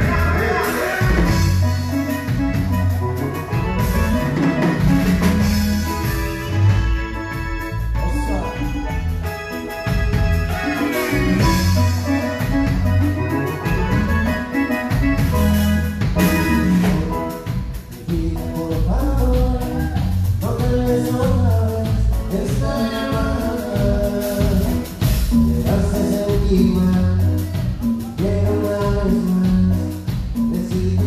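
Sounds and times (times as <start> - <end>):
person singing: 0.0 - 1.9, 16.7 - 31.0
live cumbia band: 0.0 - 31.0.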